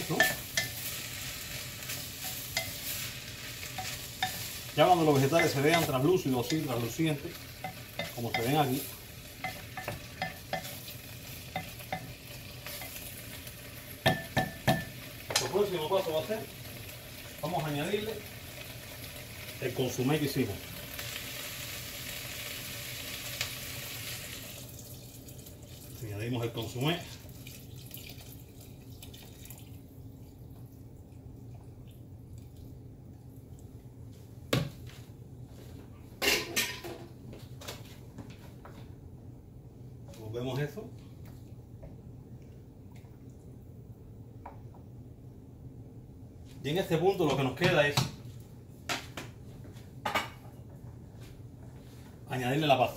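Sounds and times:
vegetables sizzling: 0.0s - 27.7s
wooden spoon clinking on glass pot: 0.1s - 0.8s, 7.6s - 8.8s, 9.4s - 10.8s.

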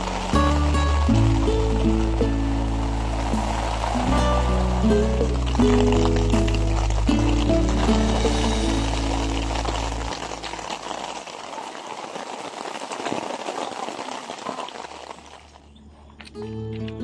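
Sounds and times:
background music: 0.0s - 10.8s
rain falling steadily: 0.0s - 16.3s.

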